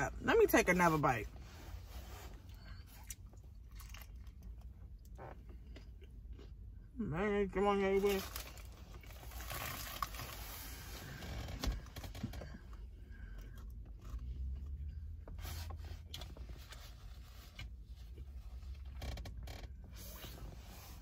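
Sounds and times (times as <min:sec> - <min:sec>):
person chewing food: 0:02.4 - 0:07.0, 0:12.7 - 0:15.2.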